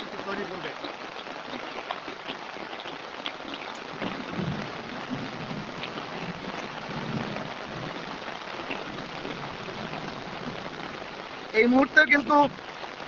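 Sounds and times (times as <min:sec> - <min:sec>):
heavy rain pouring: 0:00.0 - 0:13.0
low rumbling: 0:03.6 - 0:11.6.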